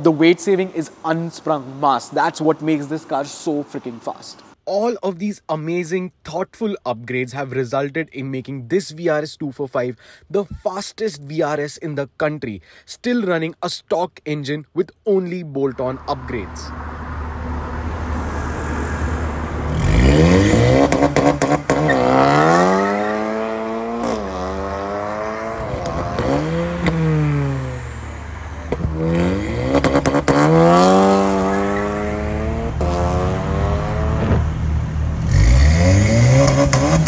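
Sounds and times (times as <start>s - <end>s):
car engine accelerating hard: 16.2s - 37.0s.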